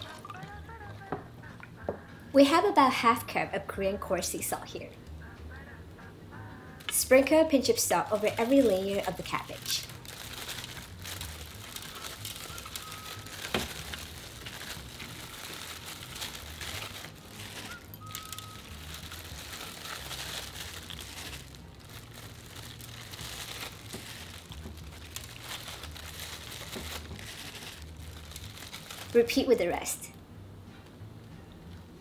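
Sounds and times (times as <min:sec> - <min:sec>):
plastic gloves crinkling: 0:00.0 - 0:01.3, 0:06.8 - 0:30.0
cabbage leaves rustling: 0:07.6 - 0:30.0.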